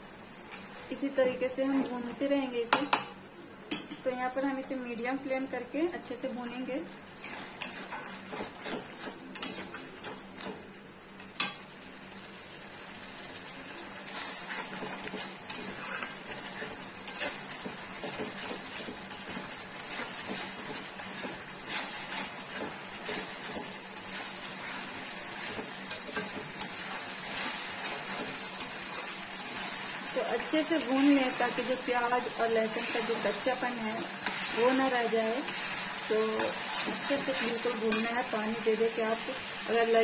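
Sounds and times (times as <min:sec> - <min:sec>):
paste sizzling: 0:07.1 - 0:10.7, 0:11.9 - 0:40.0
spatula scraping a metal pan: 0:07.2 - 0:10.2, 0:14.0 - 0:38.3.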